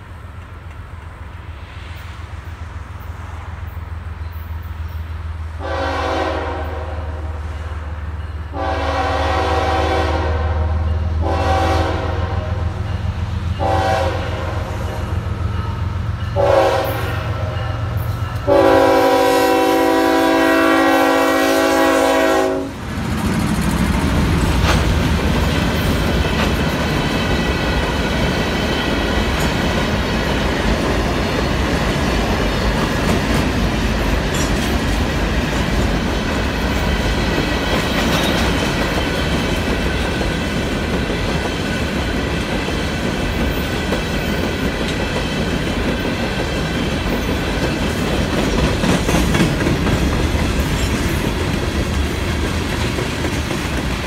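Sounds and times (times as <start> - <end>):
locomotive air horn blasts: 5.6 - 7.5, 8.5 - 12.8, 13.6 - 15.8, 16.4 - 22.8
rolling clatter of freight cars: 12.3 - 54.0.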